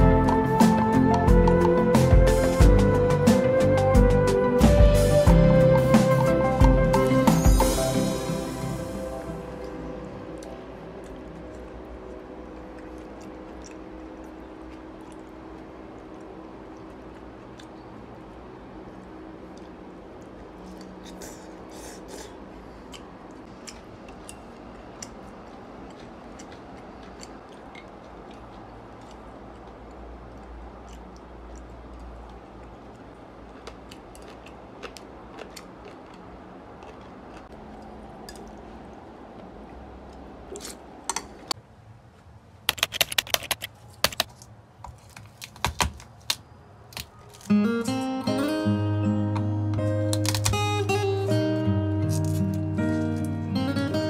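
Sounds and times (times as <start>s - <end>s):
low room hum: 7.6s - 54.0s
eating sounds: 9.6s - 41.5s.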